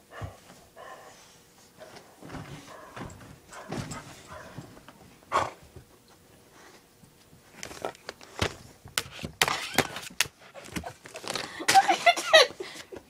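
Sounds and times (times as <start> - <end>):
dog noises: 0.0 - 5.8
dogs scuffling on bedding: 1.7 - 5.2.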